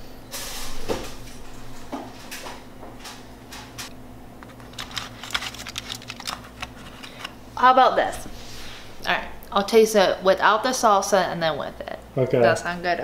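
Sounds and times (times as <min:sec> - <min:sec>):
foil crinkling: 0:04.4 - 0:07.4.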